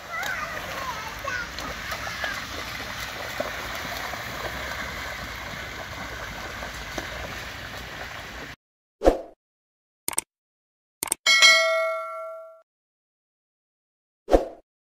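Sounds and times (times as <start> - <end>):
floodwater rushing: 0.0 - 8.6
rubber boots splashing: 0.0 - 8.6.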